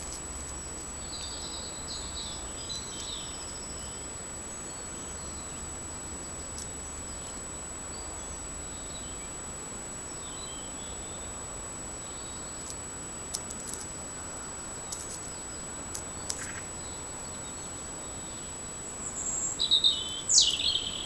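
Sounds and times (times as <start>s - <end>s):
small birds chirping: 0.0s - 9.4s, 14.5s - 21.0s
high-pitched whine: 0.0s - 21.0s
steady hiss: 0.0s - 21.0s.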